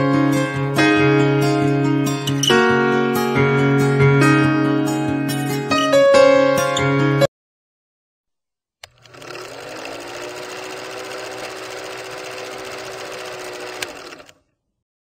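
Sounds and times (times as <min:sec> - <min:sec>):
projector motor hum: 0:08.8 - 0:14.4
film projector clattering: 0:08.8 - 0:14.5.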